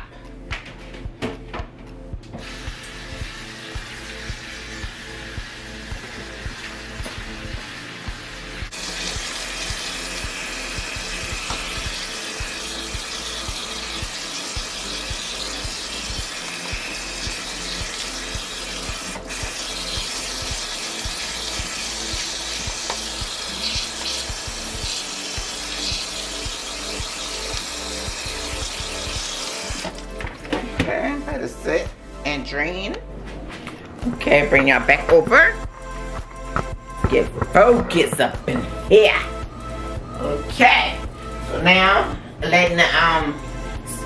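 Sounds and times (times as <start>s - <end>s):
background music with steady beat: 0.0s - 44.0s
tap water splashing into sink: 22.1s - 24.4s.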